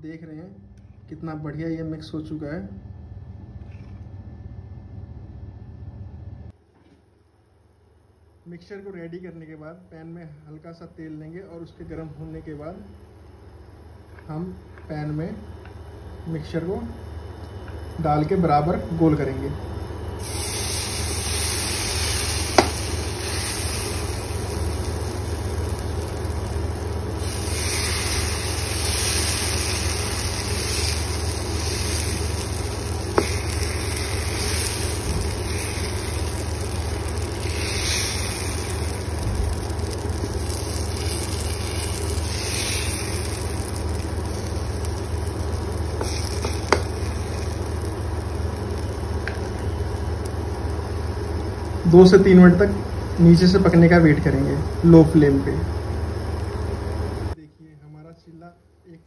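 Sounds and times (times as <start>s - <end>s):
steady low hum: 0.0s - 59.0s
batter sizzling in a pan: 19.2s - 57.4s.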